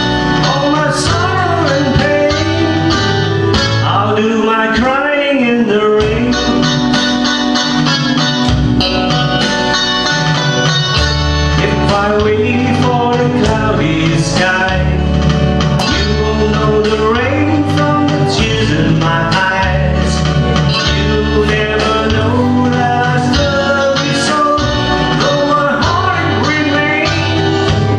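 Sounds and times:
acoustic guitar: 0.0 - 27.9
bass line: 0.0 - 27.9
man singing: 0.2 - 6.9, 11.5 - 27.9.

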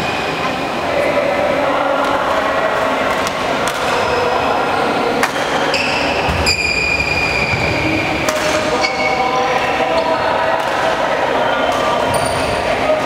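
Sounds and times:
din of a busy hall: 0.0 - 13.0
high squeaks: 5.6 - 10.2.

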